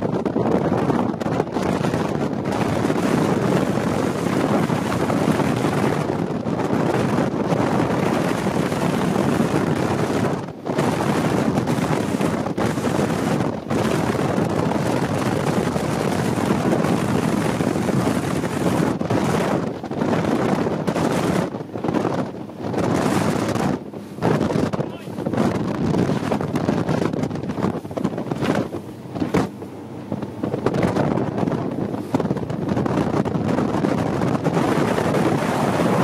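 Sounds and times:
motorboat engine rushing: 0.0 - 36.0
water rushing along hull: 0.0 - 36.0
wind buffeting microphone: 0.0 - 36.0.

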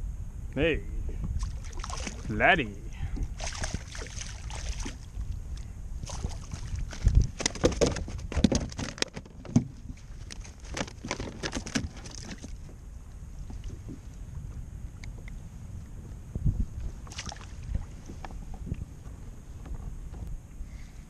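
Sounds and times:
fishing gear clicks and rustles: 6.2 - 12.8
heavy thump on kayak hull: 7.0 - 9.9.

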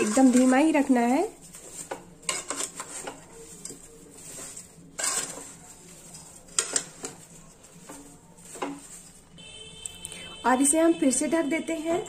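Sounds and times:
spoon scraping and knocking pan: 0.0 - 9.4.

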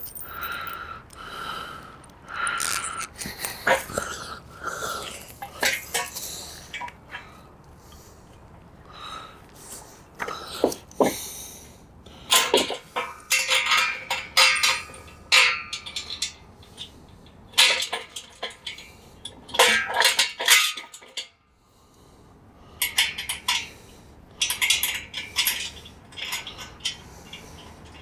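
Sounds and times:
bolts clinking on metal frame: 0.0 - 1.2, 12.3 - 21.4, 22.8 - 23.8, 24.4 - 28.0.

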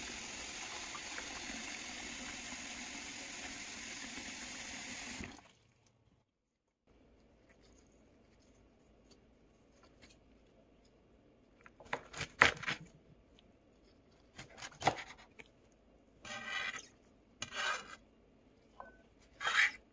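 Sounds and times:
knife chopping on cutting board: 14.4 - 15.2.

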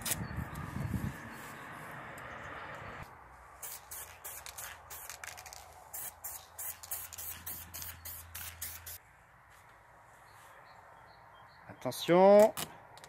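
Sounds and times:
spray paint can hissing: 3.6 - 9.0.

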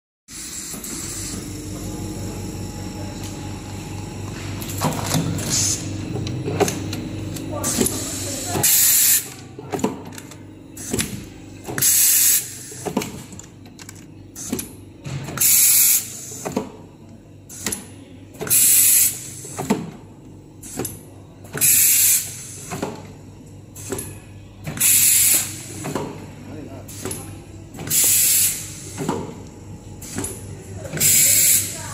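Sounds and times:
air cylinders clicking and knocking: 6.1 - 16.8, 26.9 - 31.7
pneumatic valves hissing: 7.6 - 9.3, 11.8 - 12.9, 15.4 - 16.6, 18.4 - 19.7, 21.6 - 22.8, 24.8 - 25.7, 27.8 - 29.1, 31.0 - 31.8.

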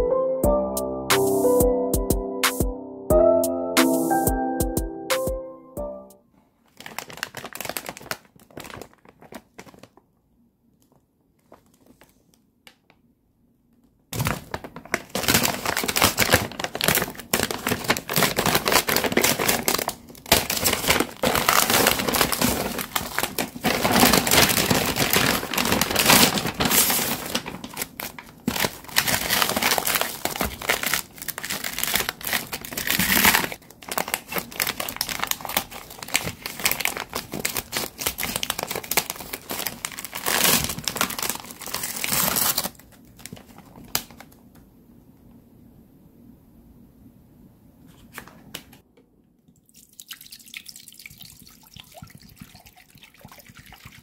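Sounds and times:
plastic packaging crinkling: 6.6 - 10.1, 14.2 - 44.4.

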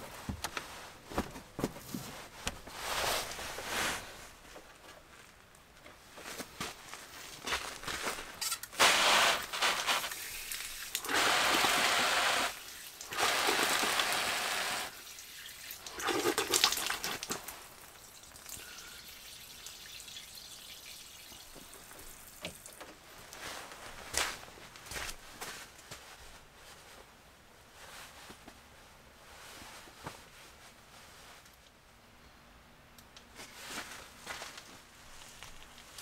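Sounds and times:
shower head spraying water: 8.8 - 15.0
hands rinsed under water stream: 8.9 - 22.4.

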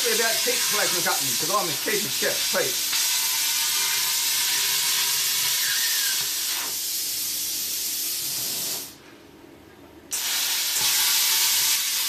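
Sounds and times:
plasma cutter hissing: 0.0 - 9.0, 10.1 - 12.0.

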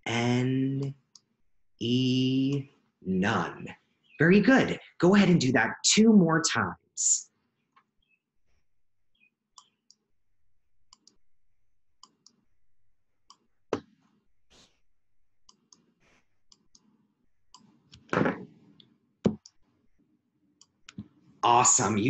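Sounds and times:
computer mouse clicking: 9.5 - 10.0, 10.9 - 11.2, 12.0 - 12.4, 15.5 - 18.1.

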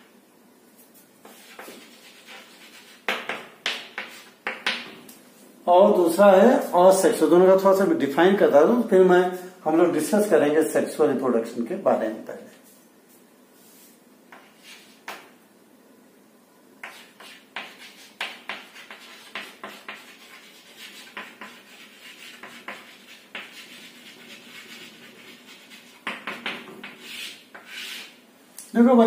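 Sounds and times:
chalk scratching on chalkboard: 0.9 - 4.6, 13.6 - 15.2, 16.8 - 28.2.

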